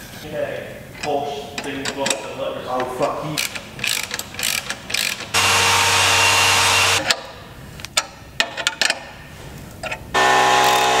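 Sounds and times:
ratchet wrench clicking: 3.4 - 5.4
loud motor whine: 5.4 - 7.0, 10.2 - 11.0.

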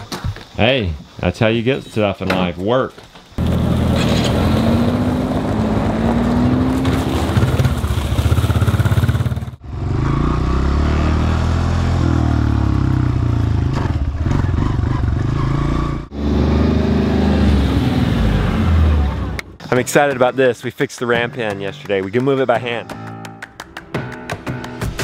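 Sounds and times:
utility vehicle engine running: 3.4 - 9.8
dirt bike engine revving: 3.4 - 19.6.

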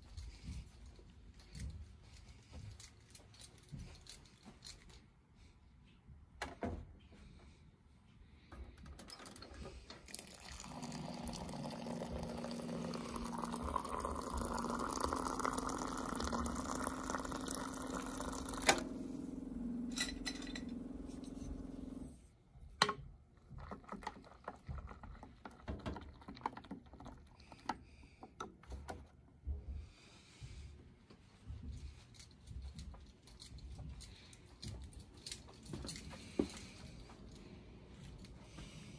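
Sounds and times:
hot water pouring into pot: 10.1 - 19.1.

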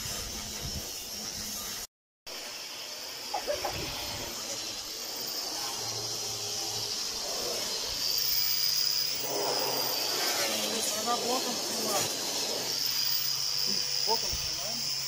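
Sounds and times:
angle grinder stripping paint: 0.0 - 15.0.

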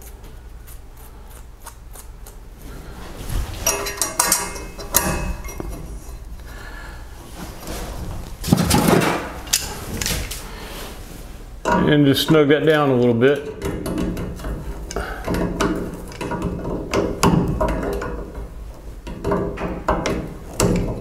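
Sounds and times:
metal clatter: 3.5 - 6.2
metal fittings clinking and rattling: 3.6 - 6.2.

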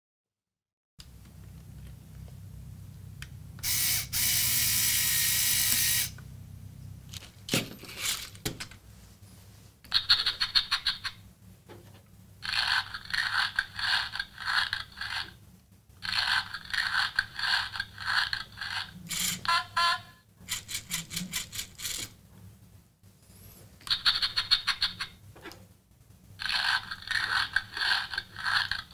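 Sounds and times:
motor whir: 3.6 - 6.2
robot motors and gears rattling: 12.4 - 15.4, 16.0 - 19.5, 26.4 - 28.9.

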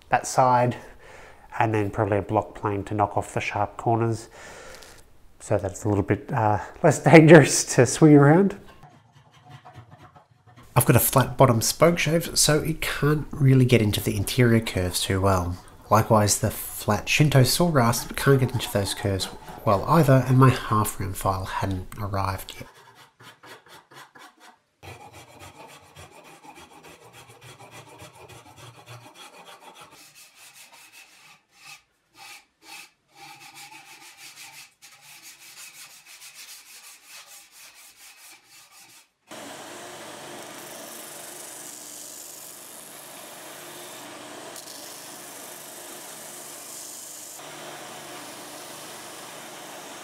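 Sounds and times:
rasp filing wood: 8.7 - 10.8, 16.5 - 20.8, 22.6 - 39.1.

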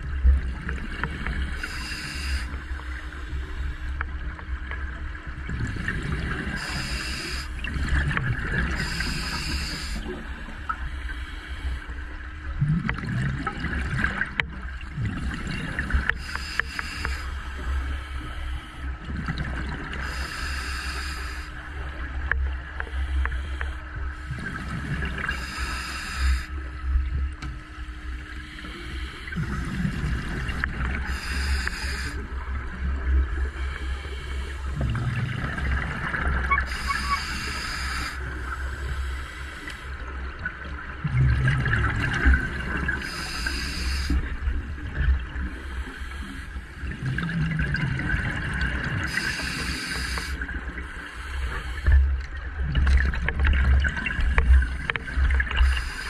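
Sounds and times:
exhaled bubbles gurgling: 0.0 - 11.0, 11.9 - 18.1, 18.9 - 22.8, 23.8 - 56.0
regulator inhale hiss: 1.5 - 3.8, 6.6 - 7.6, 8.7 - 10.1, 16.1 - 18.9, 20.0 - 21.7, 22.9 - 26.8, 28.4 - 32.3, 33.4 - 34.9, 36.6 - 40.1, 43.0 - 44.4, 45.4 - 46.8, 49.0 - 52.2, 54.4 - 56.0.

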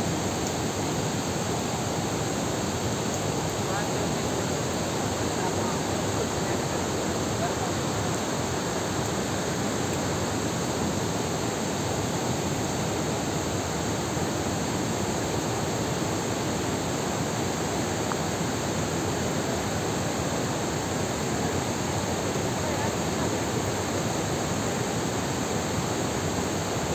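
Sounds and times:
waterfall rushing: 0.0 - 26.9.

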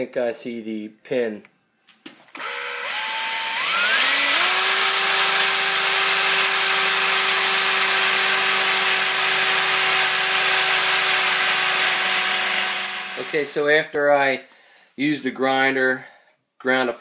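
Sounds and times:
electric drill whining: 2.3 - 13.6.

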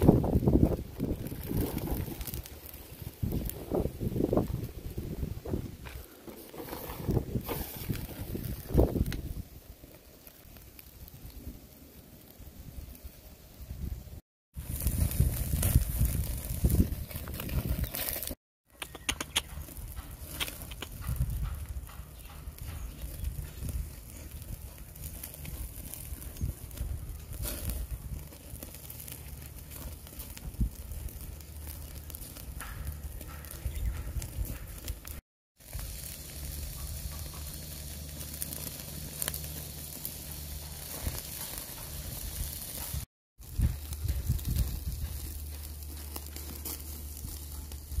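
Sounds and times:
crackles and pops of coals: 0.0 - 48.0
steaks sizzling on grill: 6.4 - 12.8, 14.6 - 18.3, 22.4 - 32.6, 35.6 - 48.0.

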